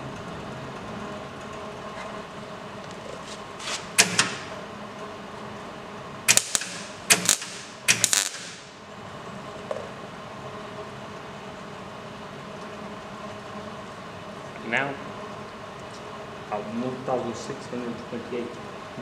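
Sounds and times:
welder hum: 2.4 - 4.8, 6.2 - 8.9
welding arc bursts: 6.3 - 8.8.

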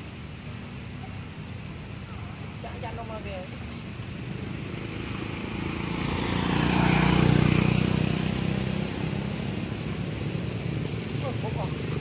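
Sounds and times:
vehicle engine passing by: 3.5 - 12.0.

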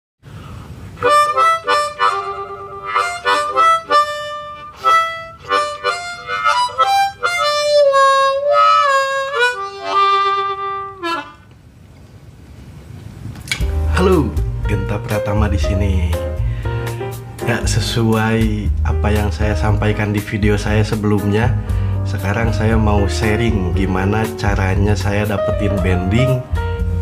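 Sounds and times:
harmonica playing: 0.9 - 11.6.

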